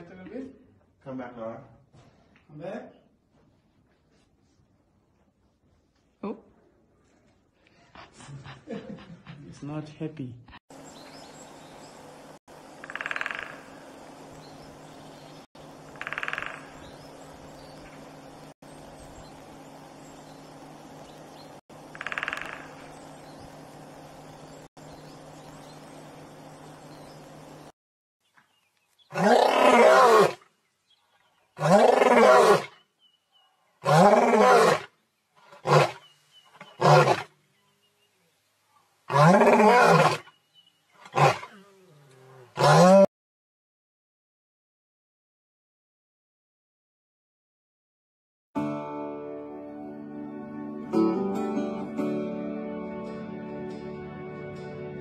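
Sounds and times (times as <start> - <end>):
woodpecker drumming on wood: 12.5 - 27.7
lion roaring: 29.1 - 30.4, 31.6 - 32.7, 39.1 - 40.2, 41.1 - 43.1.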